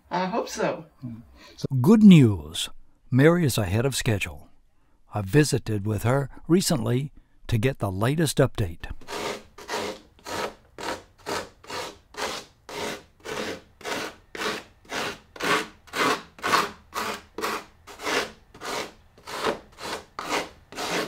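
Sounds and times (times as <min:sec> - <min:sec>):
hand tool scraping styrofoam: 0:09.0 - 0:21.0.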